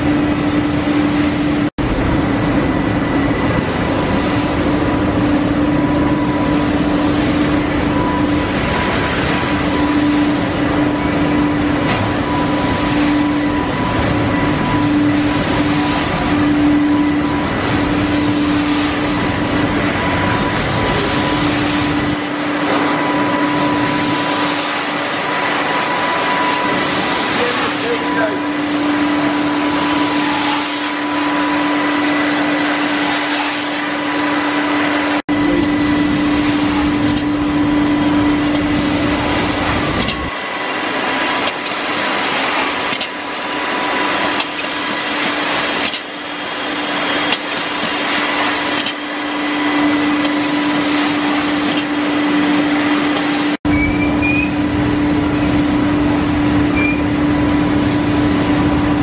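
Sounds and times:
machinery hum: 0.0s - 59.0s
short high squeaks: 53.7s - 54.6s, 56.8s - 57.1s.

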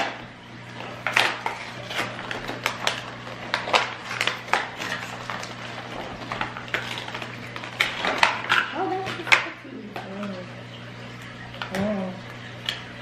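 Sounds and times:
plastic and foil packaging crinkling: 0.7s - 10.3s.

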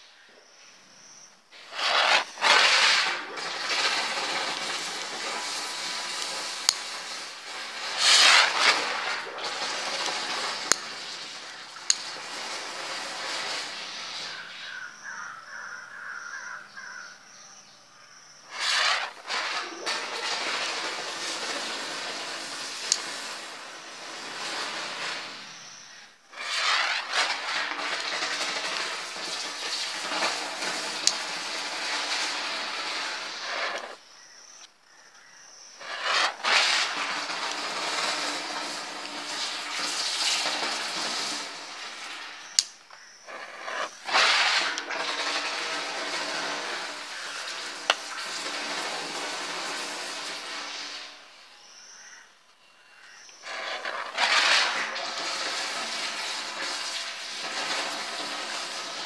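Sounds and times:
fireworks hissing and fizzing: 1.4s - 16.0s, 18.2s - 34.7s, 35.5s - 52.2s, 53.1s - 59.0s
sharp pops: 1.6s - 14.6s, 18.4s - 51.2s.

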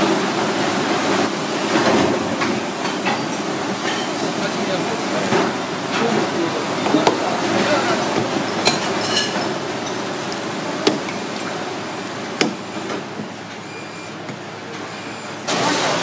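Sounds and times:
knife striking shell and chopping block: 10.8s - 11.3s, 12.4s - 12.8s.

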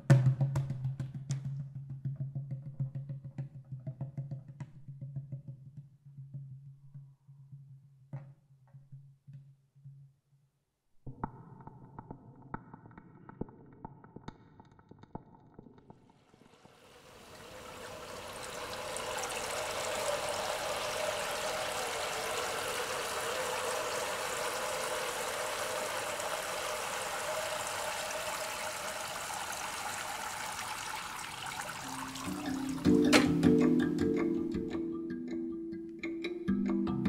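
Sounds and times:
water streams splashing into pot: 16.6s - 33.4s.

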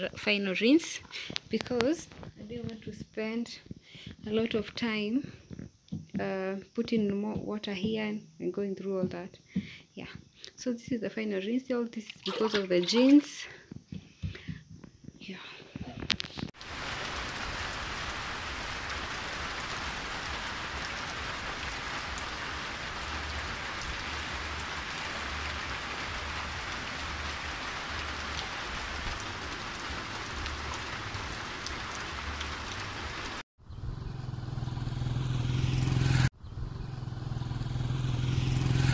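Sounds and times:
steady rain falling: 16.0s - 33.4s.

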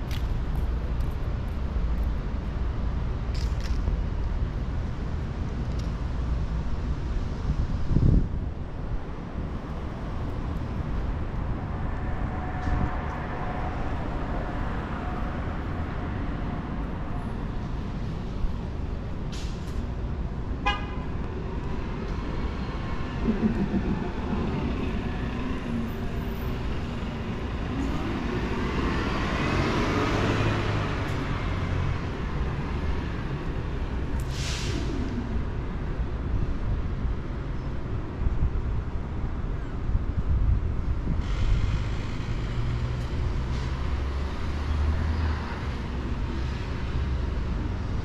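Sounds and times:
rumble of passing cars: 0.0s - 48.0s.

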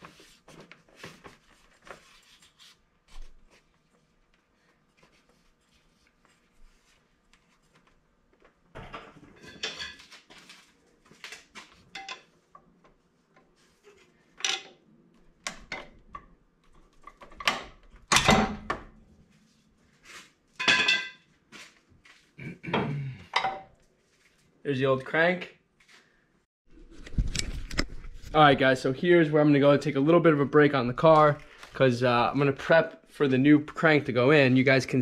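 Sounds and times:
metal tools clinking and rattling: 12.0s - 12.3s.

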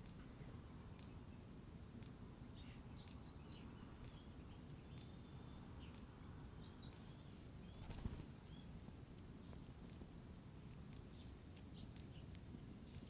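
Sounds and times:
faint high bird chirps: 2.4s - 8.8s.

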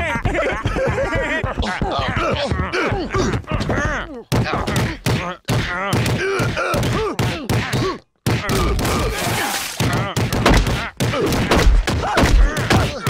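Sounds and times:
men grunting and yelling: 0.0s - 13.0s
punches and thuds: 2.1s - 9.2s, 9.8s - 13.0s.

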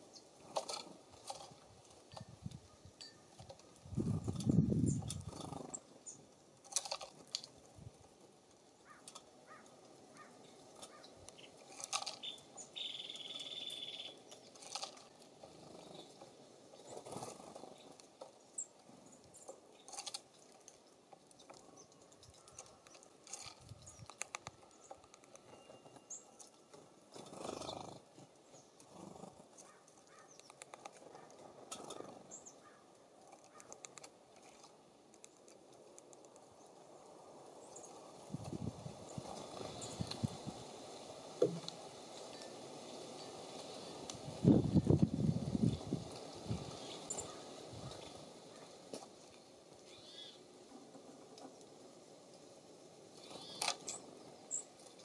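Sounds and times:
songbird chirps and calls: 0.0s - 1.5s, 2.2s - 6.3s, 8.7s - 38.1s, 45.3s - 48.8s, 49.8s - 51.4s, 53.1s - 55.0s
taps and clicks at feeders: 19.3s - 26.8s, 29.6s - 32.0s.

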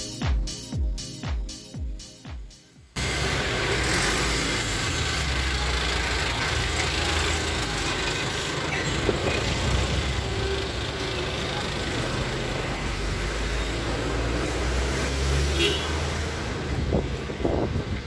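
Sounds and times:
electronic dance music: 0.0s - 3.0s
truck and car engines rumbling: 3.0s - 18.0s.

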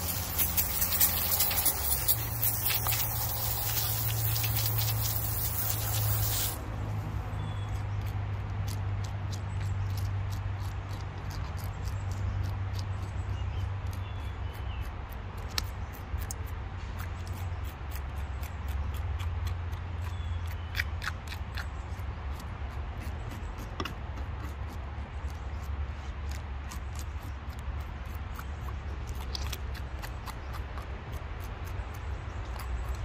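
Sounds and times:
knife scraping fish scales: 0.0s - 6.6s.

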